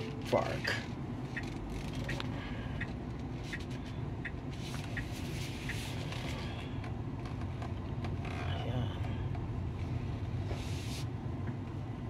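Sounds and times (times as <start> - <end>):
road and tyre rumble: 0.0 - 12.0
faint ticking: 0.6 - 5.8.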